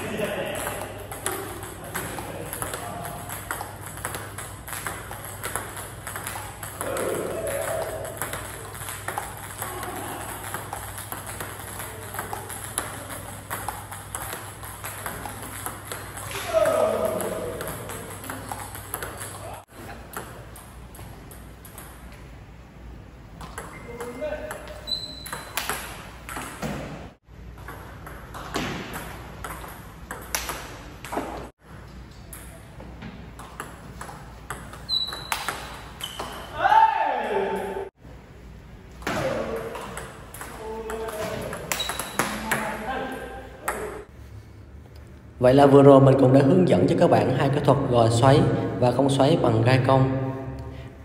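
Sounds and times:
table tennis ball clicking: 0:07.7 - 0:16.3.

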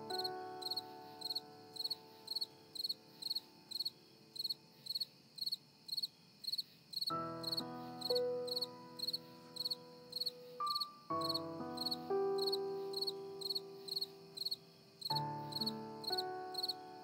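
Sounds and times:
soft background music: 0:00.0 - 0:05.1, 0:07.1 - 0:17.0
cricket chirping: 0:00.0 - 0:17.0.

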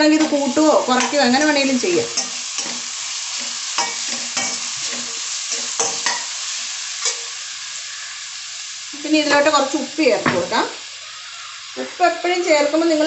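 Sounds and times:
spatula scraping a pan: 0:00.0 - 0:08.1
onions sizzling in oil: 0:00.0 - 0:13.0.

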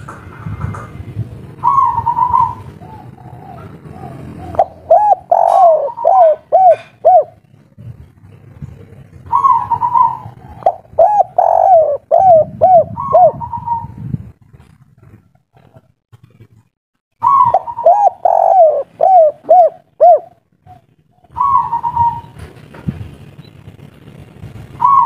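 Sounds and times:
dove cooing: 0:01.6 - 0:07.5, 0:08.8 - 0:14.1, 0:17.2 - 0:22.4, 0:24.8 - 0:25.0.

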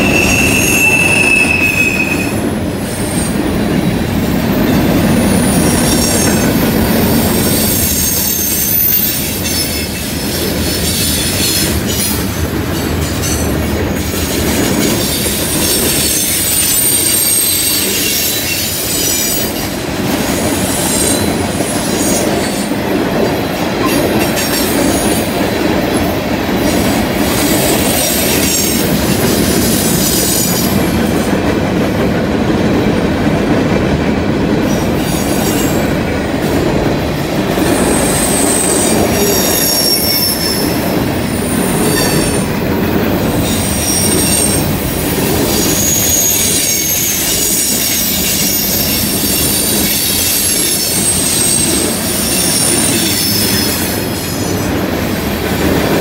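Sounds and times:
wheel flange squeal: 0:00.0 - 0:02.4, 0:15.0 - 0:19.5, 0:37.8 - 0:42.5, 0:45.3 - 0:54.6
steel wheels rumbling on rail: 0:00.0 - 0:56.0.

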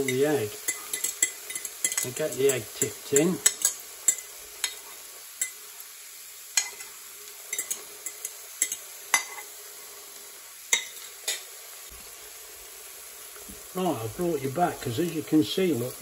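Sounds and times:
spoon clinking against ceramic bowl: 0:00.0 - 0:04.8, 0:07.5 - 0:09.4
egg and onion sizzling: 0:00.0 - 0:16.0.

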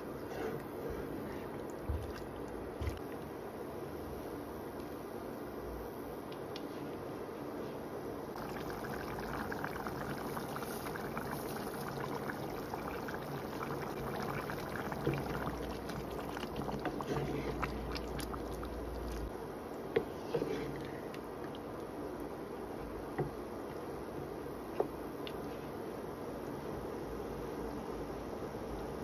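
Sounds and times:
gravy bubbling in a pan: 0:08.3 - 0:22.0.

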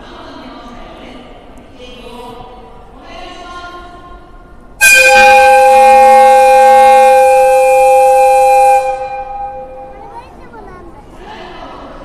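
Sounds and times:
locomotive whistle blast: 0:04.8 - 0:10.1.

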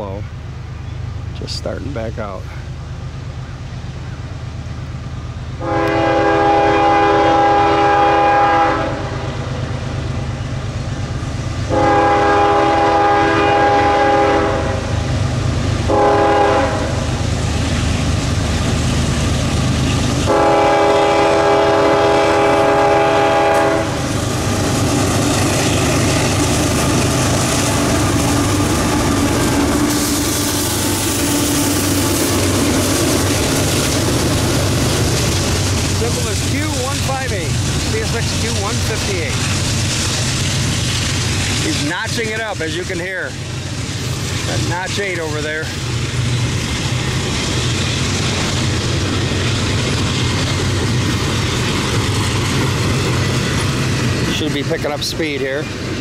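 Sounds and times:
locomotive engine rumble: 0:00.0 - 0:56.0
train wheel noise: 0:00.0 - 0:56.0
locomotive air horn blasts: 0:05.6 - 0:09.4, 0:11.7 - 0:15.0, 0:15.9 - 0:17.0, 0:20.3 - 0:24.0.

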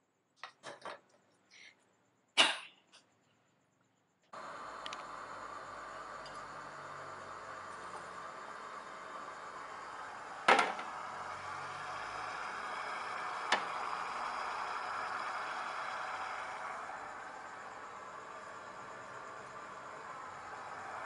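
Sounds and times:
steamer hissing: 0:04.4 - 0:21.0.

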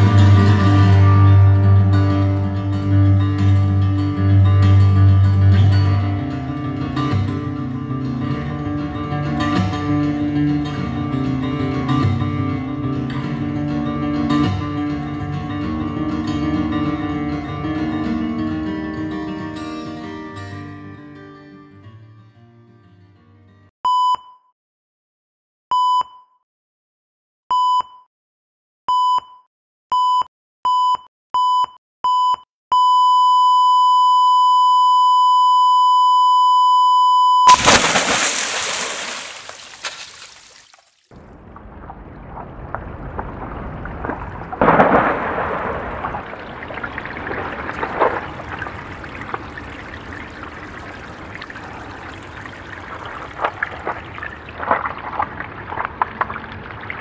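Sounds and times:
heart monitor beeping: 0:28.9 - 0:37.5
water sloshing and trickling: 0:37.5 - 0:57.0
water splash: 0:37.5 - 0:57.0.

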